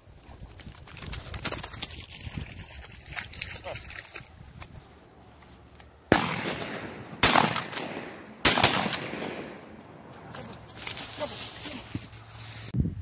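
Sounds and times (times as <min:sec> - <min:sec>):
shotgun shots with echo: 0:06.1 - 0:10.1.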